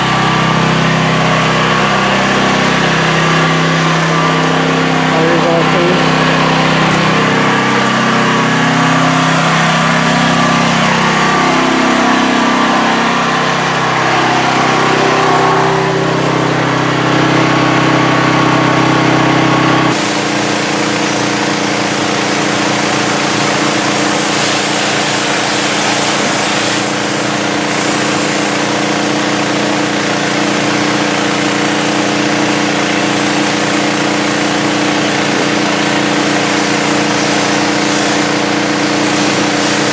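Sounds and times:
pressure washer engine running: 0.0 - 39.9
loud hiss of spray: 19.9 - 29.2, 30.3 - 39.9.

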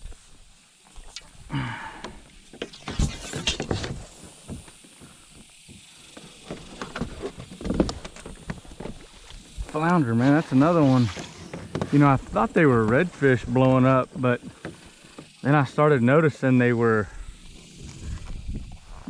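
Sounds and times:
short hissing burst: 1.0 - 3.8, 9.4 - 12.1
handling knocks and rustles: 6.4 - 13.2.

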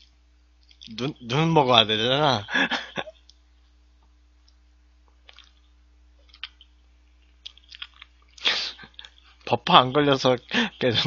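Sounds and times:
person chewing: 0.0 - 1.0, 4.4 - 9.4
steady low hum: 0.0 - 11.0
wet mouth clicks: 5.2 - 9.2.

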